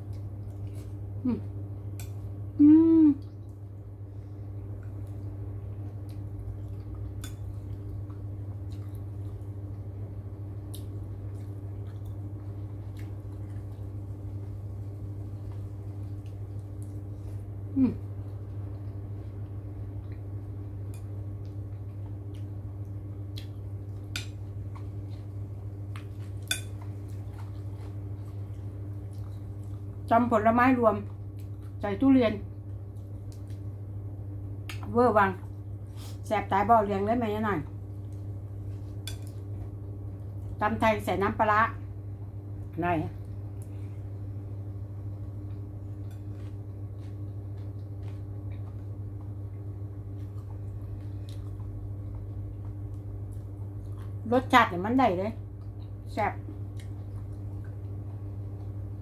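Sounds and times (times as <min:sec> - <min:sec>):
steady low hum: 0:00.0 - 0:59.0
person chewing: 0:04.7 - 0:09.9, 0:20.0 - 0:30.0, 0:45.4 - 0:54.2, 0:55.5 - 0:58.8.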